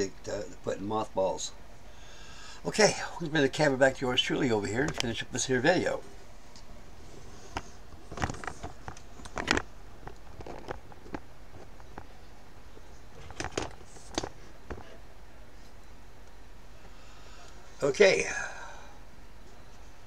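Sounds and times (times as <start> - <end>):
camera handling clicks and rustles: 7.5 - 12.1, 13.2 - 14.9.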